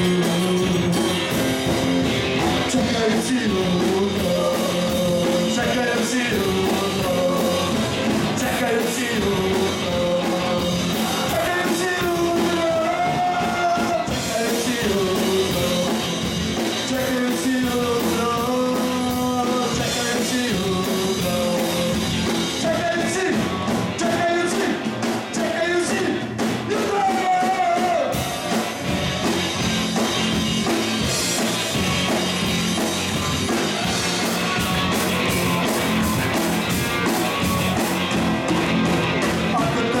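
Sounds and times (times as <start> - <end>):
person singing: 0.0 - 1.5, 2.4 - 29.0, 39.4 - 40.0
rock band playing live: 0.0 - 40.0.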